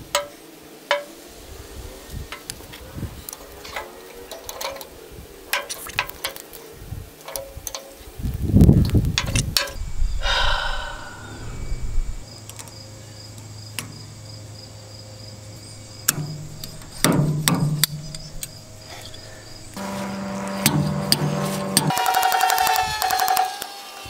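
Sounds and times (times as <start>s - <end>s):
insect chirping: 0.0s - 24.0s
hand tools knocking and scraping: 0.1s - 1.2s, 16.0s - 23.7s.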